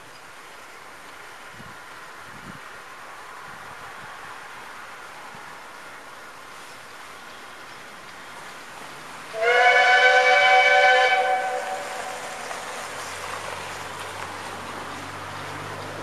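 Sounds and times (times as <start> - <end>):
low locomotive rumble: 0.0 - 16.0
steam locomotive whistle: 9.3 - 12.4.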